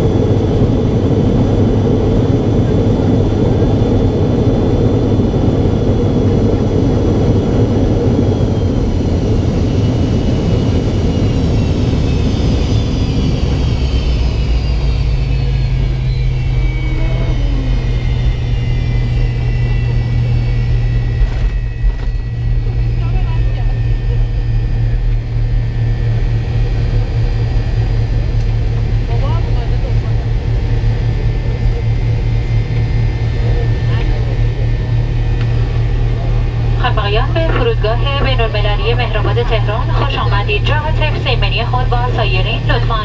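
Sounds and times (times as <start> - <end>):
jet engines roaring: 0.0 - 43.0
jet engines whining down: 0.0 - 43.0
low engine hum: 0.0 - 43.0.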